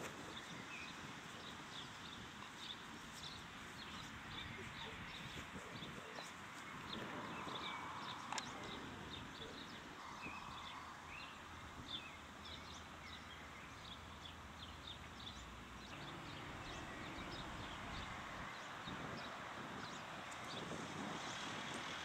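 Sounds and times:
small birds chirping: 0.0s - 21.9s
outdoor background hiss: 0.0s - 22.0s.

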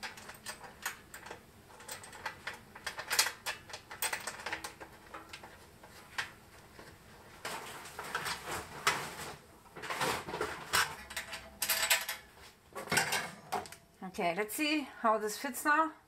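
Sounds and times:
metal clicks and scrapes: 0.0s - 9.1s.

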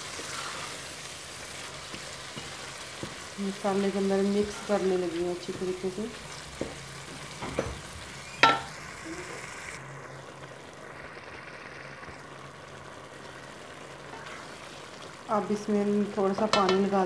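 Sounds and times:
lentils sizzling in hot oil: 0.0s - 17.0s
metal spoon clinking on pot: 16.5s - 16.9s.

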